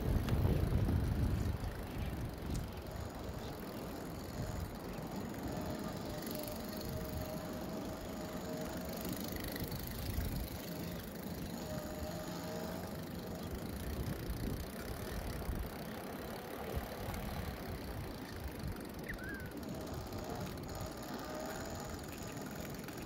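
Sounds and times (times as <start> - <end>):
wind buffeting microphone: 0.0 - 8.8, 13.4 - 16.0
bicycle tyres rumbling on pavement: 0.0 - 23.0.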